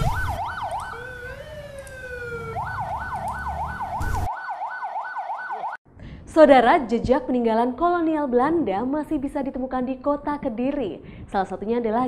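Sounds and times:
ambulance siren wailing and yelping: 0.0 - 5.8.

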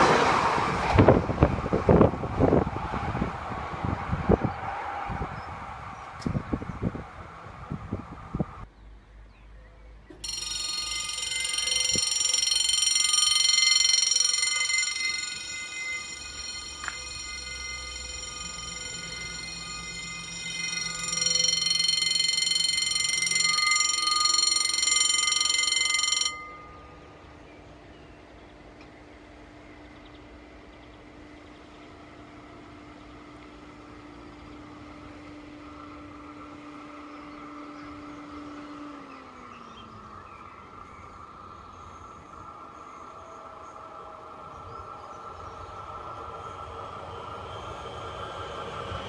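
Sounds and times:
faint steady tones: 10.1 - 49.0
level crossing warning bell: 10.2 - 27.8, 37.8 - 49.0.

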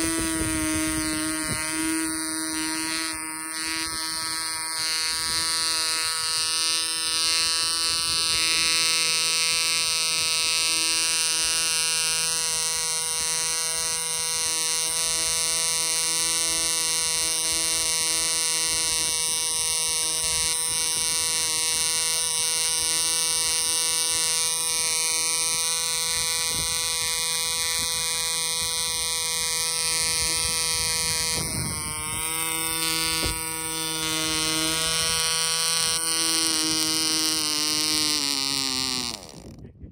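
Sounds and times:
model engine high-pitched buzz: 0.0 - 39.9.

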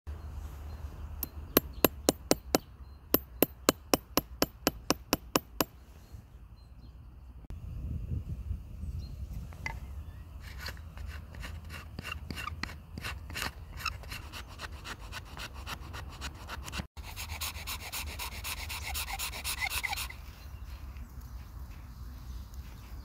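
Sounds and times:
ferro rod rasping against blade: 10.4 - 20.2
wooden stick scraped along steel blade: 10.4 - 20.2.

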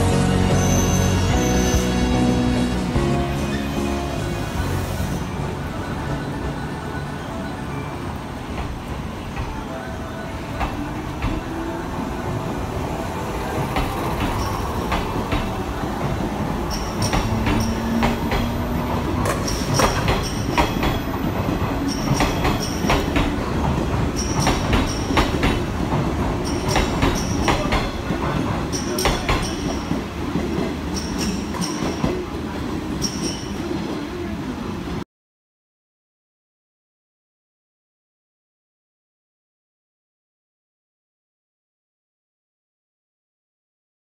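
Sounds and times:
wheel squeals: 0.0 - 2.3, 12.9 - 25.7, 26.4 - 28.1, 30.9 - 32.3, 32.9 - 34.0
train wheels clacking over rail joints: 13.4 - 34.0.

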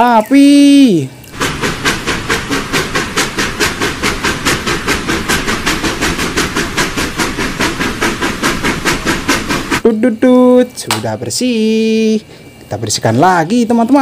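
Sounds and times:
steam locomotive chuffing: 1.3 - 10.0
hiss of steam: 1.4 - 9.8.

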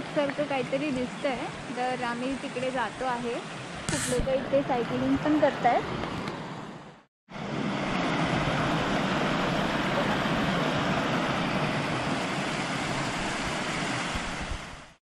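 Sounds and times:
stream rushing over stones: 7.8 - 15.0.

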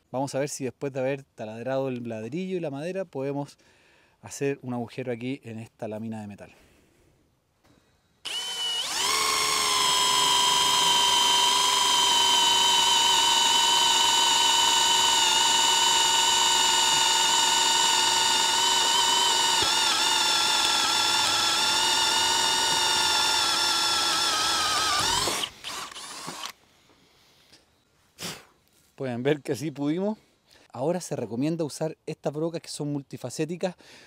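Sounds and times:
drill motor whining: 8.2 - 26.6.

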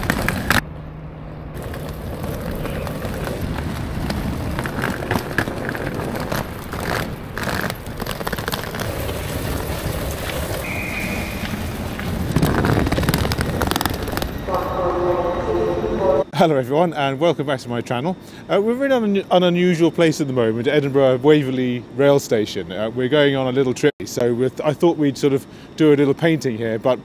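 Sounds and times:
wheeled suitcase rattling on pavement: 0.0 - 0.6, 1.6 - 14.5
passing traffic: 0.0 - 16.3
high beep: 10.6 - 11.6.

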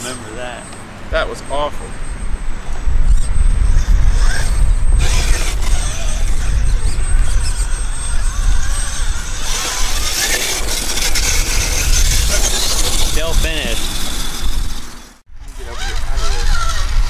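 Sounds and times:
electric motor whining: 2.2 - 17.0.

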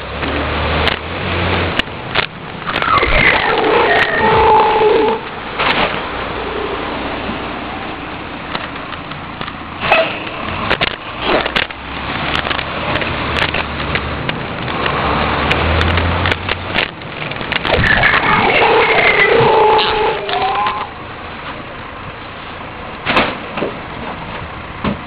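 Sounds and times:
garbage truck engine rumble: 0.0 - 25.0
high squeal of packer mechanism: 2.7 - 5.2, 17.8 - 21.0.

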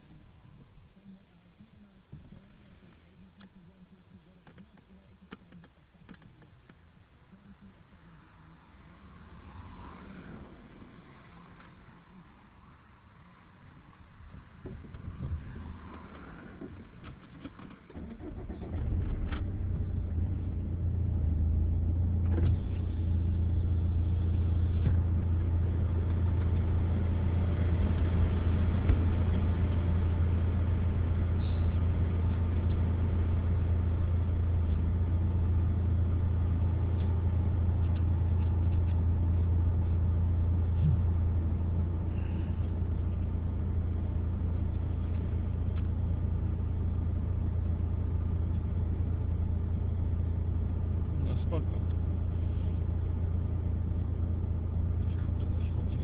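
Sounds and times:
car engine droning: 13.2 - 56.0.

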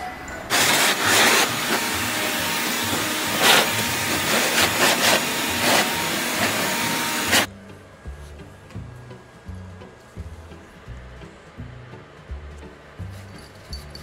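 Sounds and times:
electric leaf blower: 0.5 - 7.5.

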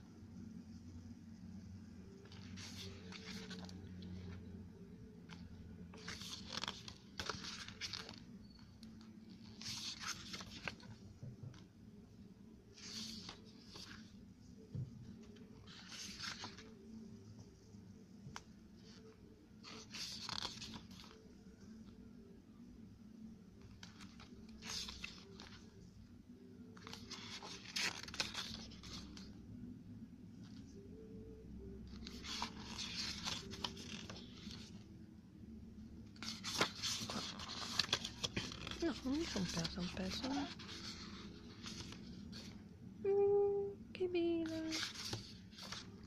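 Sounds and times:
pages being turned: 2.2 - 4.4, 5.2 - 11.7, 12.7 - 14.2, 15.3 - 16.8, 18.3 - 21.4, 23.6 - 25.8, 26.8 - 29.4, 31.9 - 34.9, 36.0 - 42.6, 44.4 - 46.0.

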